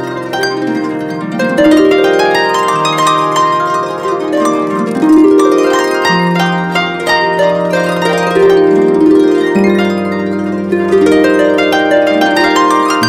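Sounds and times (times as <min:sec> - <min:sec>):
instrumental music with held notes: 0:00.0 - 0:13.0.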